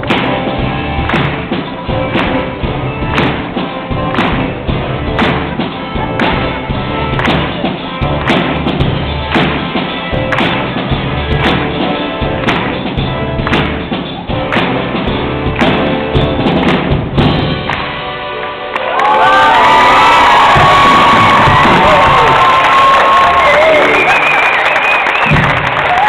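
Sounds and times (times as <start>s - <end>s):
live rock band playing: 0.0s - 26.0s
audience cheering and whooping: 18.7s - 26.0s.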